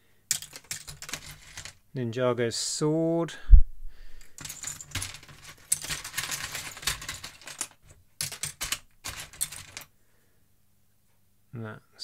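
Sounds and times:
plastic toy bricks clattering: 0:00.3 - 0:01.8, 0:04.2 - 0:09.9.

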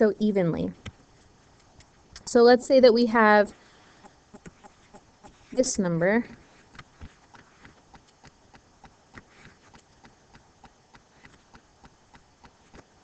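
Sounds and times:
stylus ticking on tablet: 0:07.4 - 0:13.0.

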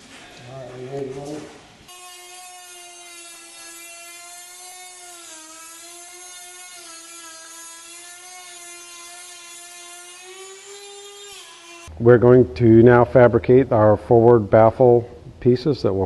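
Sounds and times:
rotary tool whining: 0:01.9 - 0:11.9.

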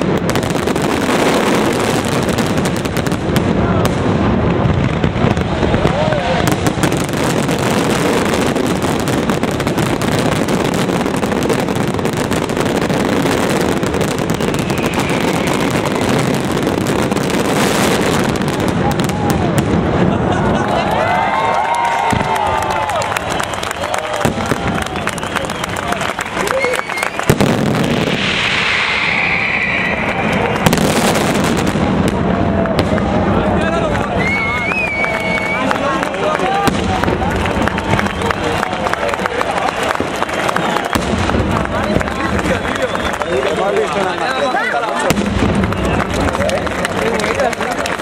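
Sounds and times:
fireworks barrage: 0:00.0 - 0:48.0
hissing crackle: 0:27.1 - 0:32.3
loud firework bang: 0:27.2 - 0:33.2.

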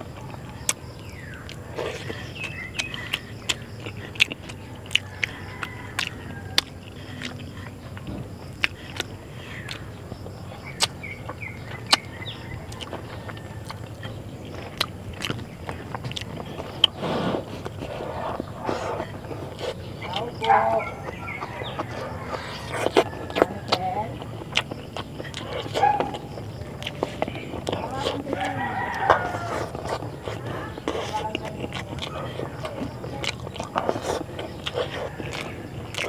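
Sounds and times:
person chewing food: 0:00.0 - 0:36.0
mouth clicks and lip smacks: 0:00.1 - 0:36.0.

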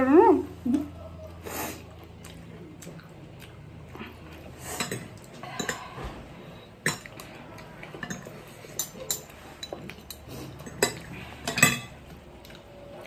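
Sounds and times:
forks clinking on plates: 0:08.0 - 0:12.0.

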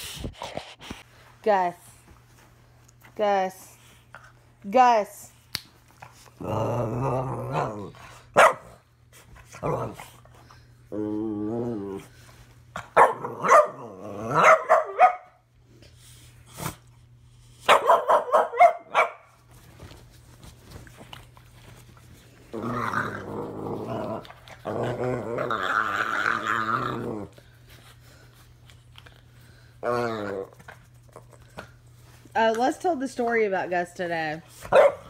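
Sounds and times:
puppy growling and barking: 0:06.2 - 0:08.9, 0:09.5 - 0:10.2, 0:12.8 - 0:15.4, 0:17.6 - 0:19.3, 0:22.4 - 0:27.4, 0:29.8 - 0:31.2.

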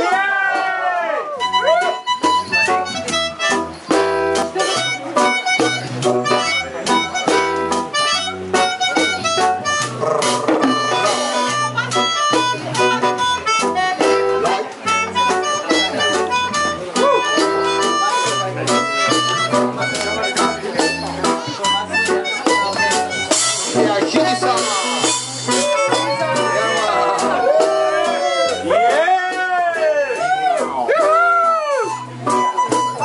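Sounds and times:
acoustic guitar: 0:00.0 - 0:33.0
drum kit: 0:00.0 - 0:33.0
melodica melody: 0:01.4 - 0:29.0, 0:31.0 - 0:33.0
bass line: 0:01.4 - 0:33.0.

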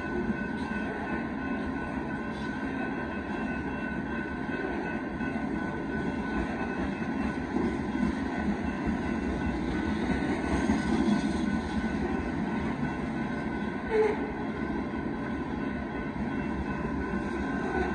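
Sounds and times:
freight train wheels rumbling on rails: 0:00.0 - 0:17.9.

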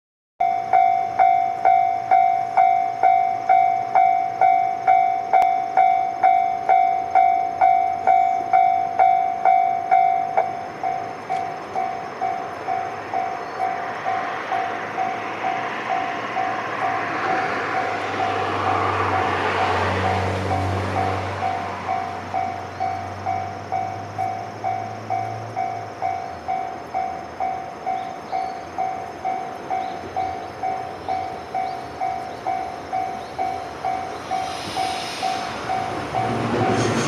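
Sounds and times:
level crossing bell ringing: 0:00.4 - 0:13.4
approaching train rumble: 0:00.4 - 0:37.0.

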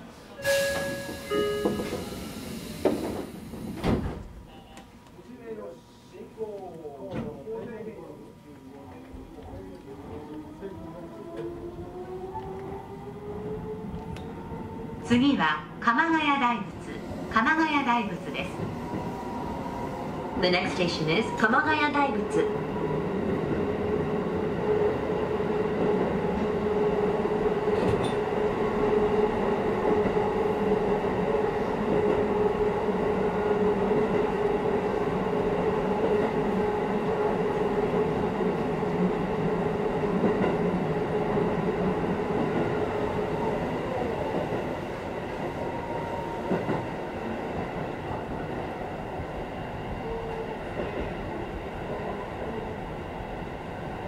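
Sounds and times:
train running on rails: 0:00.0 - 0:04.9, 0:08.1 - 0:54.0.

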